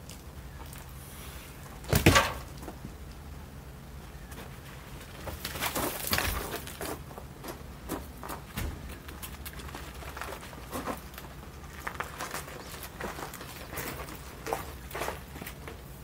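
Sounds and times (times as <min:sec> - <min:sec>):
log thudding down: 0:01.9 - 0:02.7.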